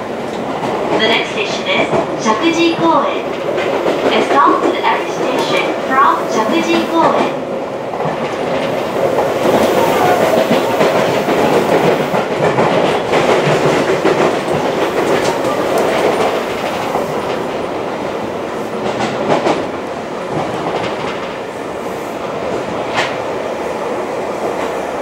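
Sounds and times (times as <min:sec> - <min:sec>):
train wheels rumbling on rail: 0:00.0 - 0:25.0
wheels clicking over rail joints: 0:07.9 - 0:17.6.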